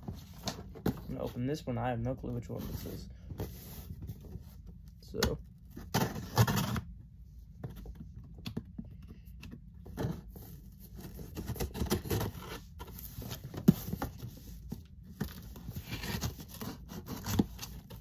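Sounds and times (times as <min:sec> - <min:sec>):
cardboard box rustling and scraping: 0:02.5 - 0:04.6, 0:09.8 - 0:18.0.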